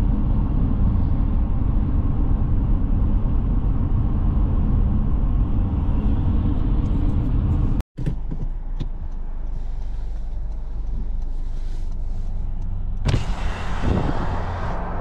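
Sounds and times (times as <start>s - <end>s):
car road and engine rumble: 0.0s - 15.0s
wind noise rushing: 13.1s - 15.0s.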